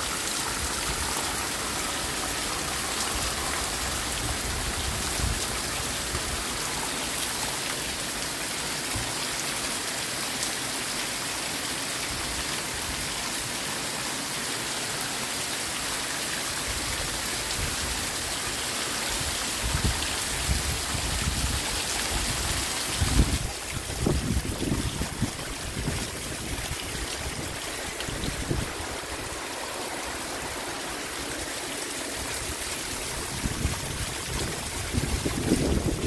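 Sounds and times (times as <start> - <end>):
heavy rain pouring: 0.0 - 36.0
wind gusts on microphone: 19.1 - 29.7, 32.1 - 36.0.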